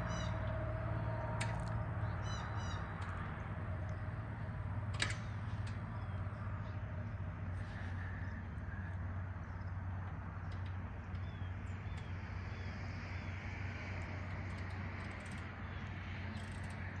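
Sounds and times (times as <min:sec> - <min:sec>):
steady low rumble: 0:00.0 - 0:14.9
bird chirping: 0:02.0 - 0:03.0.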